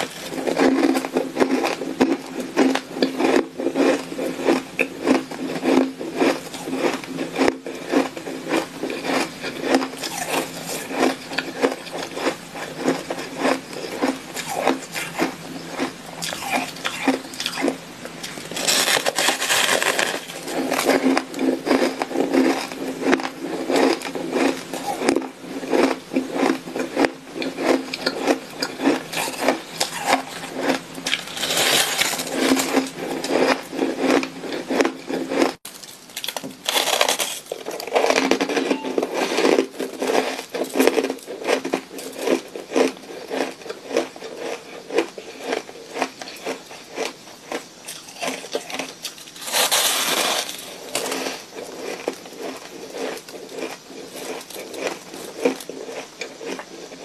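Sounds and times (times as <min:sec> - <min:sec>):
shaved ice crunching: 0:00.0 - 0:47.1, 0:47.9 - 0:57.0.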